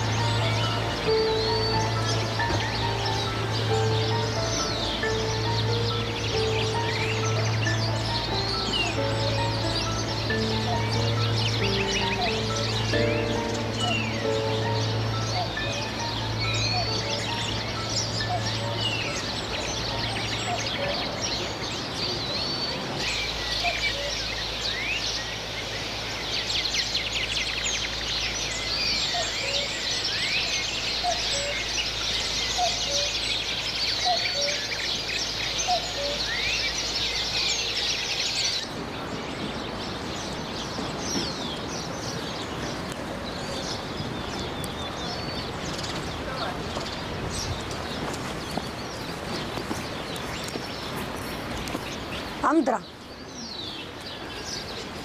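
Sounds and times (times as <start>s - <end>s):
low bird call notes: 0.0s - 22.2s
birds chirping and twittering: 0.0s - 55.0s.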